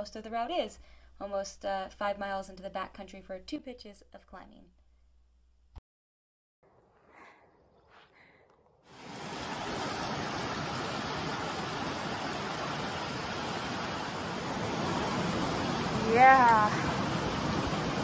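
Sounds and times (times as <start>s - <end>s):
creek cascading over rocks: 9.0s - 18.0s.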